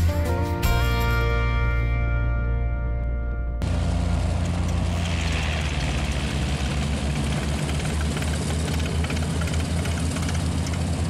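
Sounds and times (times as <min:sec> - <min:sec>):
radial engine idling: 0:03.6 - 0:11.0.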